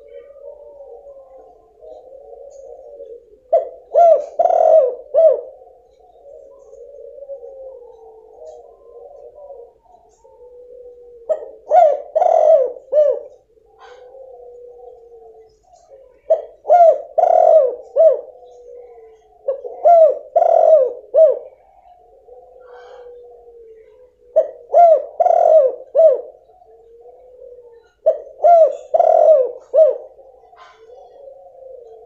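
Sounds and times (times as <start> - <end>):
dove cooing: 0.0 - 32.0.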